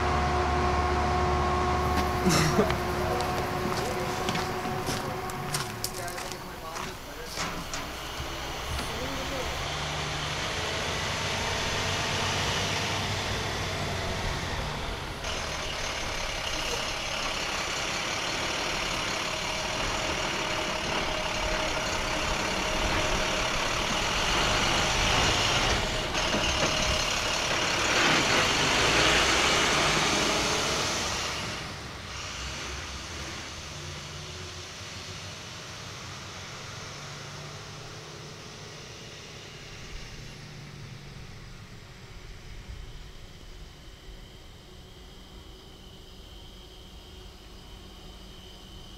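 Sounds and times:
truck driving on gravel: 0.0s - 38.3s.

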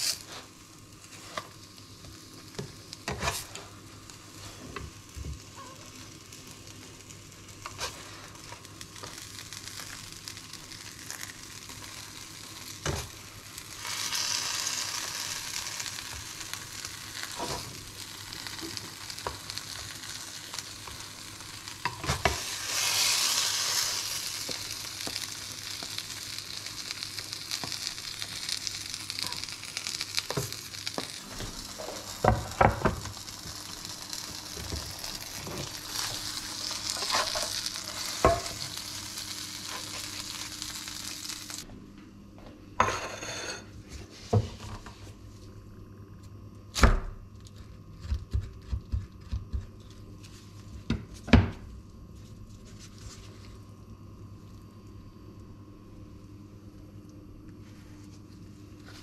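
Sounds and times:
wrap sizzling in pan: 0.0s - 41.7s.

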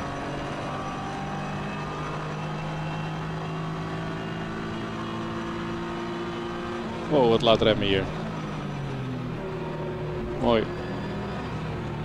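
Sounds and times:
race car engine running hard: 0.0s - 12.0s.

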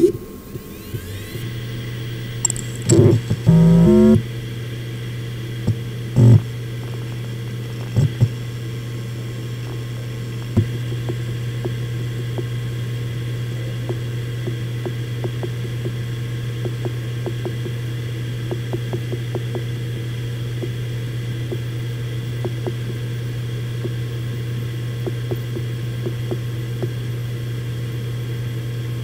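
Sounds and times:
rising stepped whine: 0.0s - 4.4s
hard drive spinning hum: 0.0s - 29.0s
hard drive heads ticking: 1.9s - 4.2s, 5.6s - 7.2s, 10.3s - 19.8s, 22.4s - 23.1s.

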